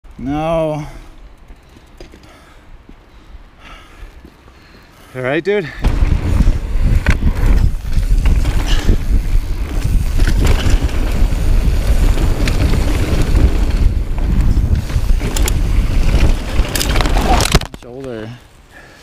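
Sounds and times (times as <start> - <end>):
steady rumble: 5.8 - 17.4
wind buffeting microphone: 5.8 - 17.6
bike knocks and rattles: 5.8 - 18.0.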